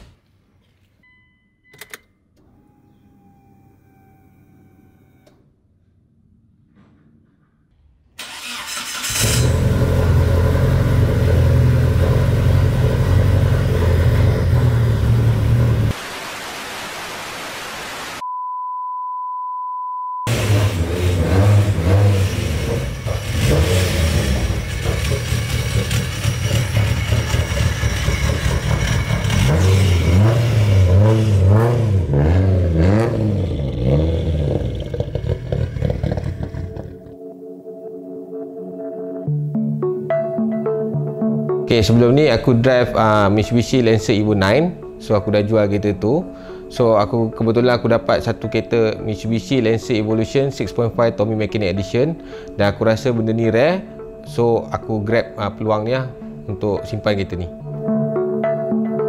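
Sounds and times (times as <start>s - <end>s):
car engine revving: 8.2s - 16.0s, 20.3s - 37.1s
car engine running loud: 9.2s - 15.9s, 20.3s - 36.5s.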